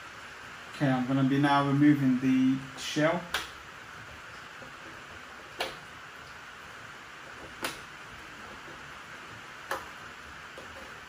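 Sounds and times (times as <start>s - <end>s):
faint hiss: 0.0s - 11.0s
sharp clicks of clips: 3.3s - 3.6s, 7.4s - 7.9s.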